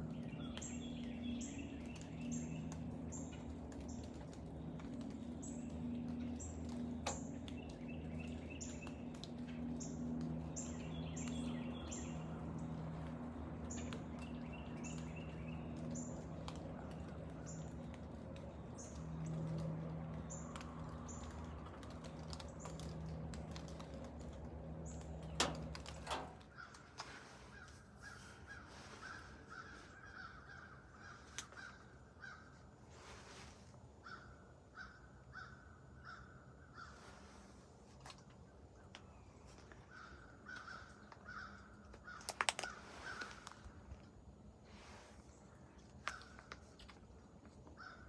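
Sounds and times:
low hum with drone: 0.0s - 48.0s
crow cawing: 28.5s - 32.6s, 39.9s - 43.4s.

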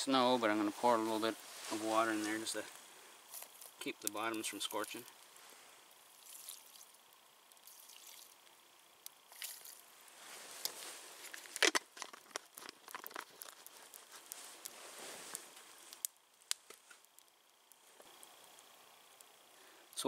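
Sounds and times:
fire crackling: 0.0s - 20.0s
jacket and groundsheet rustling: 0.2s - 2.7s, 9.4s - 11.8s, 13.6s - 16.0s.

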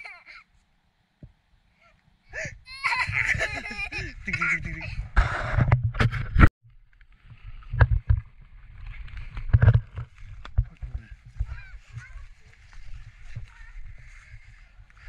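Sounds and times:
child chattering and laughing: 0.0s - 0.5s, 1.8s - 5.1s
wind rumble on microphone: 7.3s - 15.0s
footsteps through grass: 10.0s - 15.0s.

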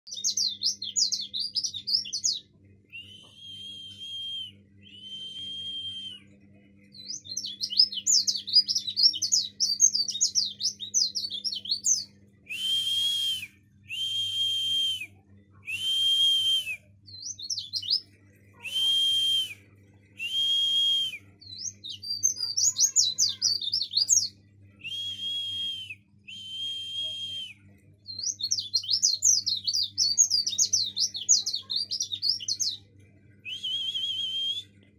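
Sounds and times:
small bird twittering and singing: 0.0s - 12.5s, 16.8s - 18.9s, 21.2s - 24.9s, 27.5s - 34.0s.

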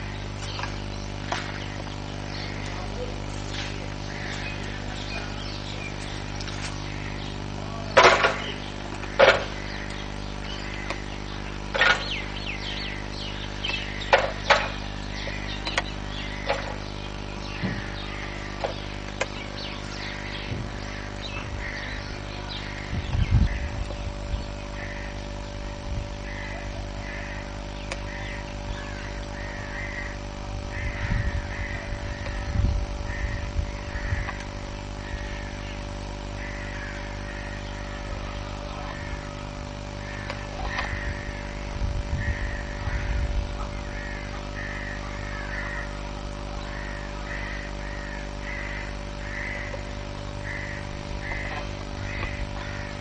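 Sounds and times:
bird calling: 0.0s - 53.0s
steady low hum: 0.0s - 53.0s
wind rumble on microphone: 20.4s - 26.3s, 30.2s - 35.3s, 40.6s - 44.0s.

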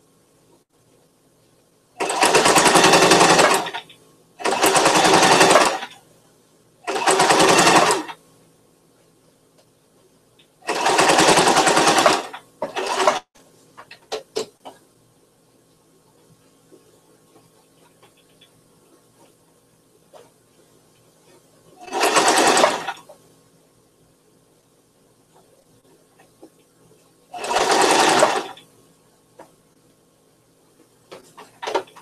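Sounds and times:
sewing machine stitching: 2.0s - 6.0s, 6.8s - 8.2s, 10.6s - 13.3s, 21.8s - 23.1s, 27.3s - 28.6s, 31.2s - 32.0s.

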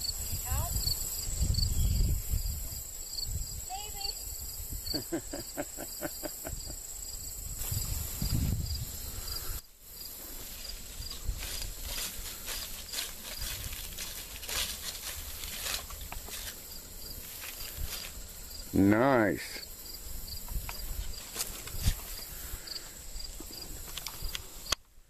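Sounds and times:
insects chirping: 0.0s - 25.0s
footsteps through grass and leaves: 7.4s - 24.3s.

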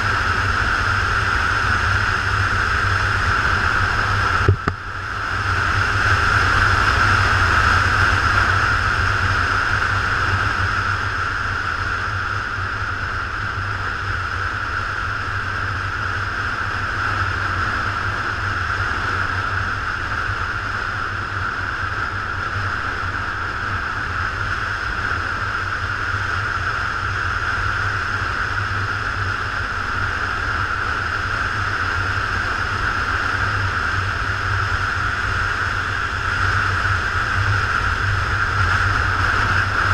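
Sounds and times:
motorcycle engine drone: 0.0s - 39.9s
wind noise: 0.0s - 39.9s.

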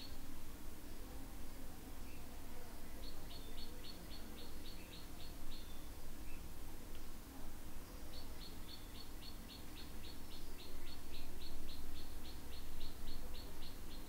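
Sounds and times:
low steady hum: 0.0s - 14.0s
bird chirping: 2.0s - 6.5s, 7.8s - 14.0s.

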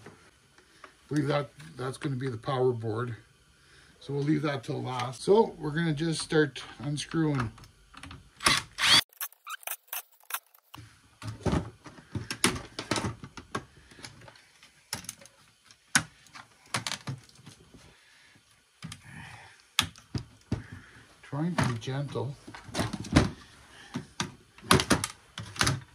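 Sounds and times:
cordless screwdriver running: 8.4s - 10.8s.

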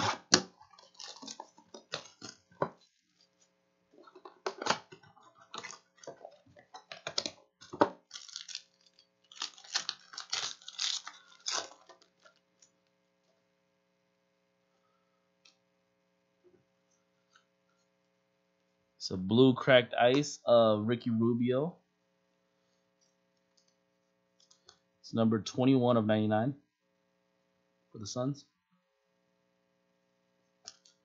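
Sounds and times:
wrapper crinkling and tearing: 0.0s - 2.5s, 5.4s - 7.3s, 8.0s - 12.4s.

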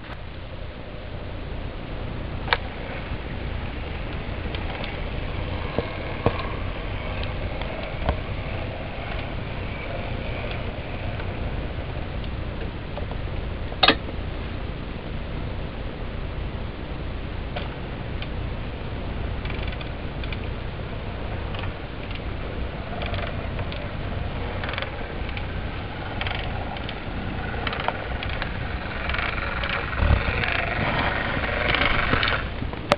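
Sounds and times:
model train motor hum: 0.0s - 32.9s
sharp clicks: 19.4s - 20.5s, 21.5s - 22.3s, 23.0s - 23.8s, 26.1s - 32.9s.

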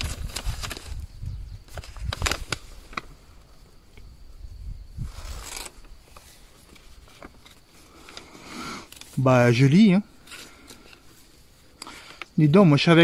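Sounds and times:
wind rumble on microphone: 0.0s - 3.4s, 4.0s - 5.9s
paper crackling and rustling: 0.0s - 3.5s, 5.0s - 12.3s
puff of breath: 7.8s - 9.0s.

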